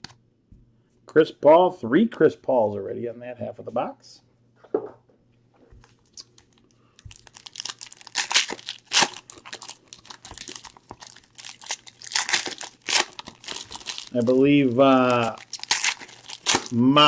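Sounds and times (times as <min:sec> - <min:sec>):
foil wrapper crinkling and tearing: 0:06.1 - 0:17.0.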